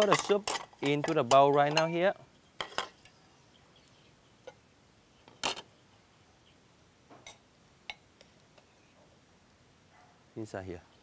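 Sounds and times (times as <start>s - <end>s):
utensils clicking against pot: 0.0s - 1.9s.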